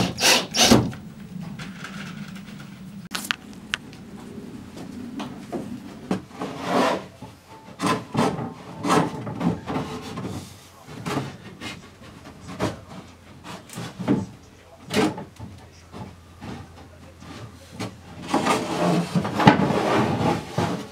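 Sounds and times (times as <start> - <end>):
wood scraping against wood: 4.8 - 14.3, 15.9 - 20.9.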